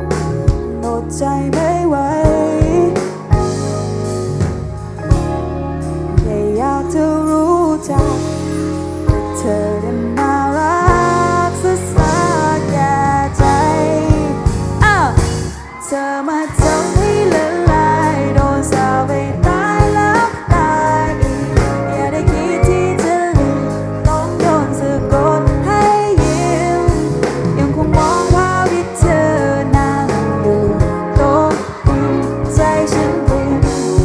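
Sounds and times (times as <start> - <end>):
pop song with lead vocal: 0.0 - 34.0
steady drum beat: 12.0 - 15.7, 16.5 - 34.0.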